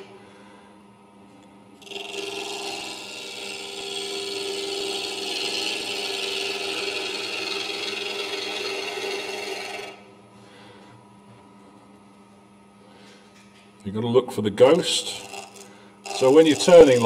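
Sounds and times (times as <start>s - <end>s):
gouge cutting wood on a lathe: 1.8s - 10.0s, 15.0s - 17.0s
lathe motor hum: 1.8s - 10.1s, 15.0s - 17.0s.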